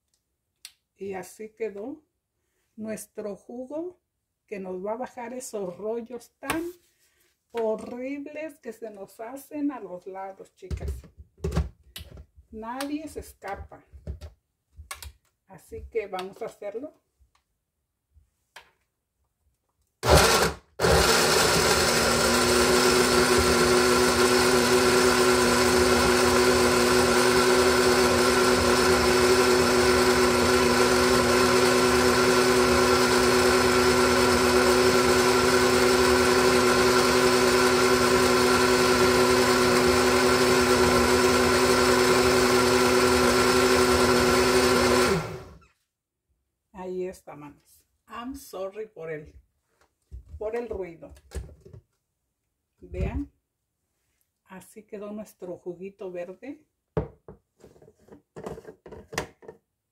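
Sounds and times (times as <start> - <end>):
blender motor running: 20.0 - 45.6.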